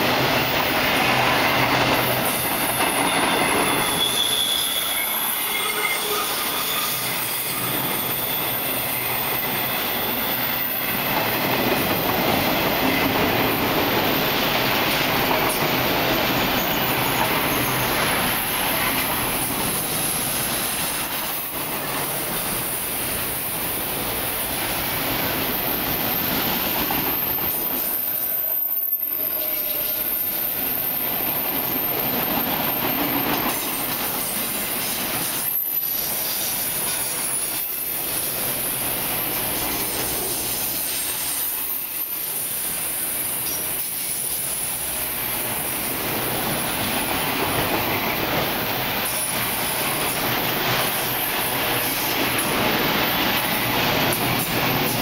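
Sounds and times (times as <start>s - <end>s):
rumble of steel wheels on rail: 0.0s - 55.0s
high-pitched wheel squeal: 2.2s - 11.2s, 27.1s - 32.3s.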